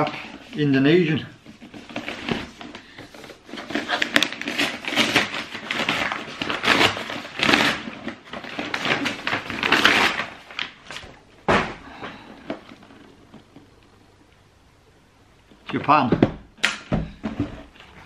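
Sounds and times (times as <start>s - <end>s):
paper tearing and rustling: 1.5s - 11.2s.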